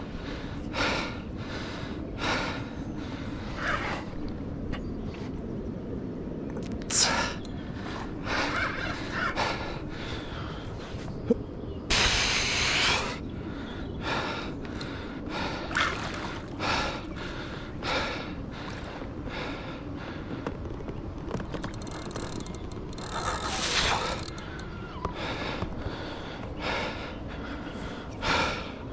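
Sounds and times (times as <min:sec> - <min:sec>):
man breathing hard: 0:00.0 - 0:04.2, 0:06.9 - 0:11.0, 0:11.9 - 0:20.5, 0:23.7 - 0:28.9.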